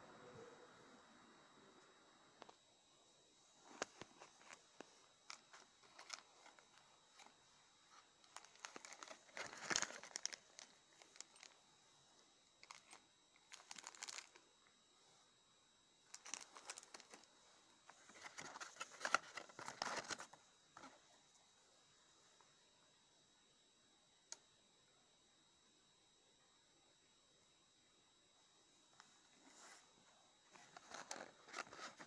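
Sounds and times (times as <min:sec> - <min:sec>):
plastic bag crinkling: 0:05.3 - 0:07.3, 0:07.9 - 0:11.6, 0:12.6 - 0:14.4, 0:16.1 - 0:17.3, 0:17.9 - 0:20.4, 0:30.5 - 0:32.0.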